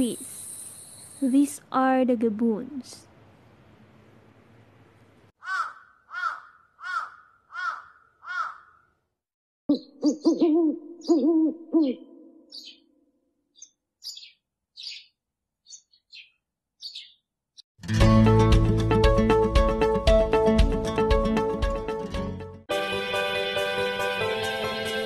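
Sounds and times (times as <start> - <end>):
gibbon hooting: 9.7 - 12.3.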